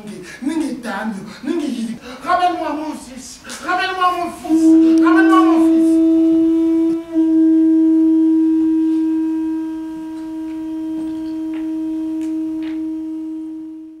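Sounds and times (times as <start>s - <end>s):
long held tone: 4.4s - 14.0s.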